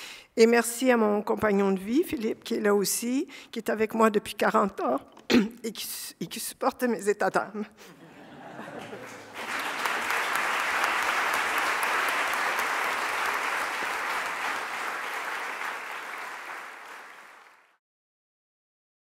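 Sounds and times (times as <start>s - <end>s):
audience applauding: 8.4s - 17.8s.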